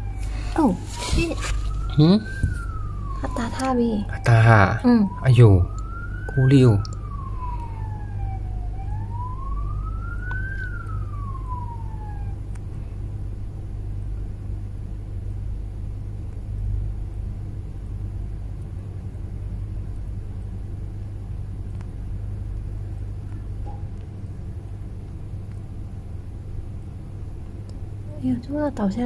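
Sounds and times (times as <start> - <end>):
police car siren wailing: 0.0 - 12.5
low rumble of traffic: 0.0 - 29.0.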